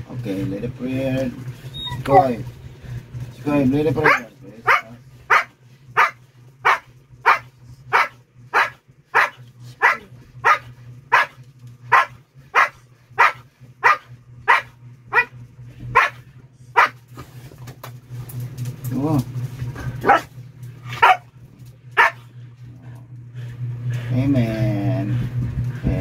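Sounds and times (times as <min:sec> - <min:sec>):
dog barking: 0:04.0 - 0:17.0, 0:20.0 - 0:20.3, 0:20.9 - 0:21.3, 0:22.0 - 0:22.3.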